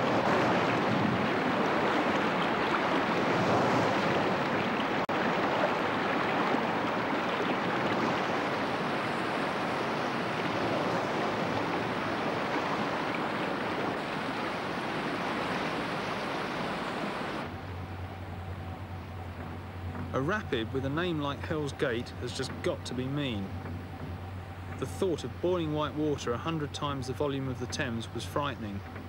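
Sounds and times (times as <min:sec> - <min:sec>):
river rapids rushing: 0:00.0 - 0:17.5.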